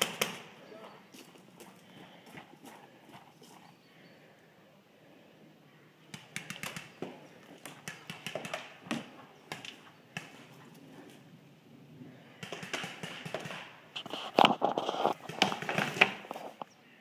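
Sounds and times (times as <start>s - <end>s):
footsteps crunching on forest floor: 0.7s - 3.8s.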